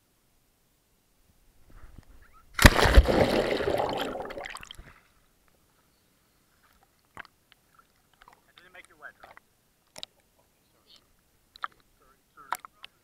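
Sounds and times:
big water splash: 2.6 - 4.8
water sloshing: 2.6 - 5.0.

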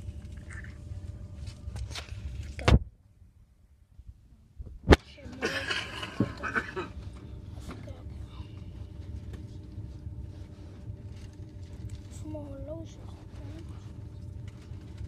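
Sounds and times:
faint steady hum: 0.0 - 15.0
train rumbling inside carriage: 5.3 - 15.0.

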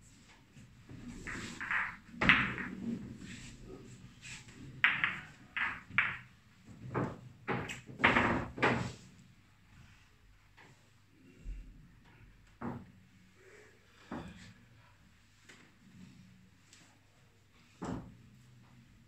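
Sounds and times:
billiard balls knocking: 0.9 - 3.5, 4.8 - 6.3, 6.9 - 8.9.

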